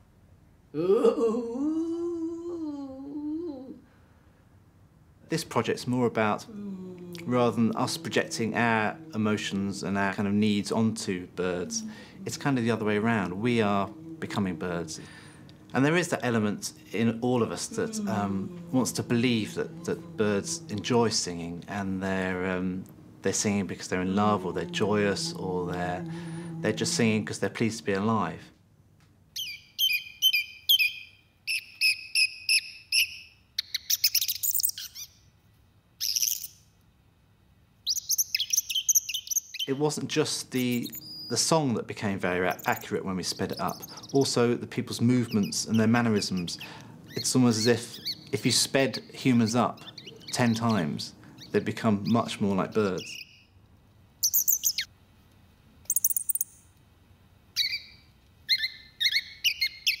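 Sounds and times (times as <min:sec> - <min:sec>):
sped-up whistled birdsong: 0:29.4 - 0:35.2, 0:37.8 - 0:39.8, 0:42.5 - 0:44.3, 0:45.2 - 0:53.6, 0:54.2 - 0:54.9, 0:55.9 - 0:56.6, 0:57.5 - 1:00.0.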